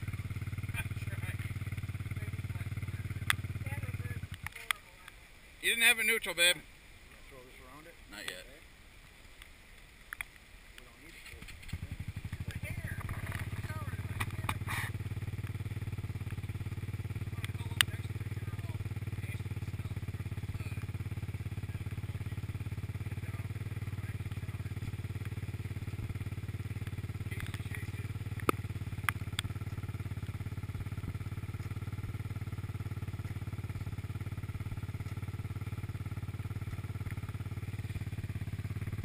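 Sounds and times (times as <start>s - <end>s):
atv engine idling: 0.0s - 6.5s, 9.8s - 39.0s
sharp clicks: 26.7s - 27.7s.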